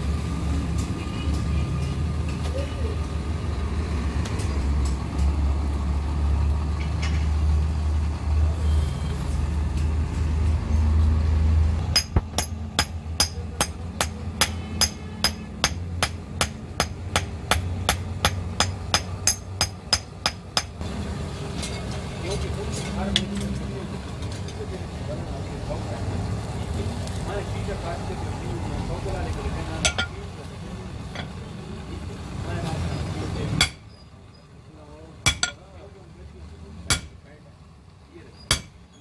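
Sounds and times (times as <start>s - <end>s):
hammer ringing on anvil: 12.0s - 17.3s, 35.3s - 35.6s.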